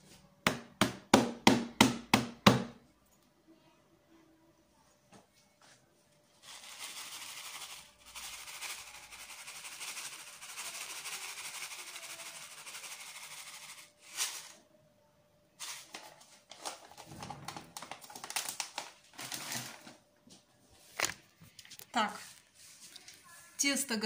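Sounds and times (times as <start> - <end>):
paper packet crinkling: 15.6 - 20.0, 20.8 - 23.2.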